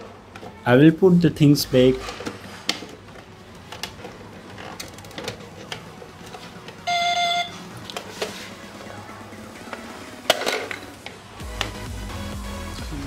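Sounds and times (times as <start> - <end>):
electronic beep: 6.8 - 7.6.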